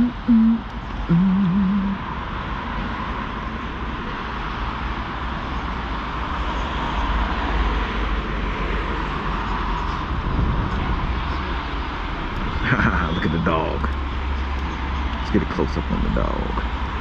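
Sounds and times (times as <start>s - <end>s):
wind noise: 9.2s - 13.4s.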